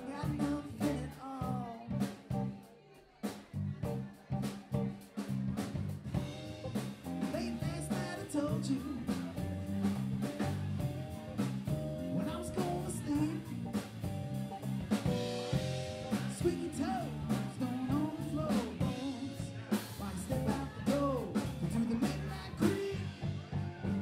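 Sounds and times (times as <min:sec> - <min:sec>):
electric bass: 0:00.0 - 0:02.6, 0:03.6 - 0:24.0
drum kit rock beat: 0:00.0 - 0:24.0
electric guitar: 0:06.1 - 0:24.0.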